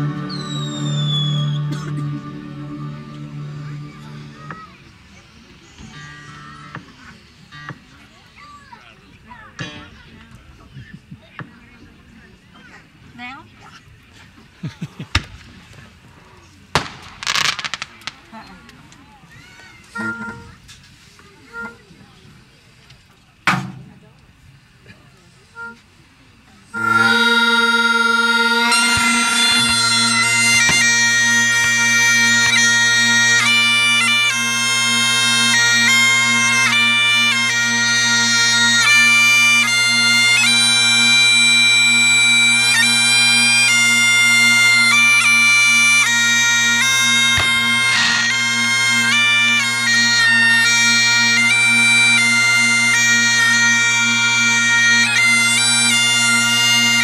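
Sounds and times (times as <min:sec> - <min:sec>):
bagpipe chanter tune: 0:00.0 - 0:08.0, 0:19.8 - 0:20.7, 0:25.5 - 0:26.0, 0:26.6 - 0:57.0
bagpipe drones: 0:00.0 - 0:08.1, 0:19.8 - 0:20.6, 0:25.6 - 0:25.9, 0:26.6 - 0:57.0.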